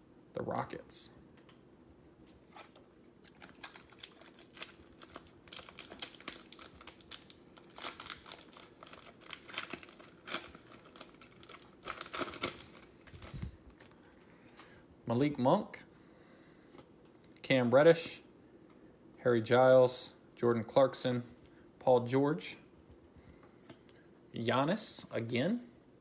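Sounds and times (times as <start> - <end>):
plastic wrapper crinkling: 2.5 - 14.2.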